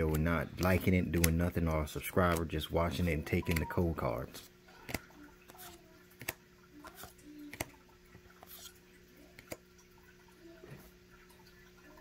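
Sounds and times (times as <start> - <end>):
cards being flipped: 0.0 - 7.8, 8.4 - 8.8.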